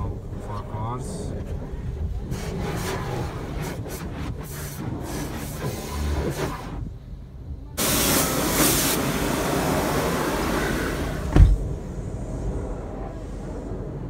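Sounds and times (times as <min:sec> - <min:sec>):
water spray drumming on car: 0:07.8 - 0:11.4
low thump: 0:11.3 - 0:11.8.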